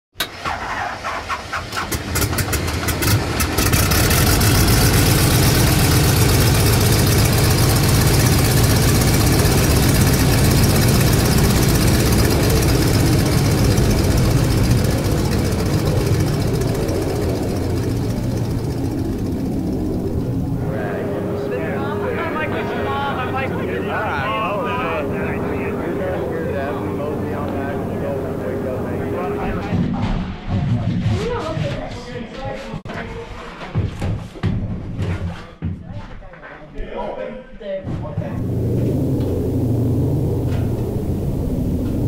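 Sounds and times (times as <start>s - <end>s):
radial aircraft engines droning: 2.9s - 29.8s, 38.4s - 42.0s.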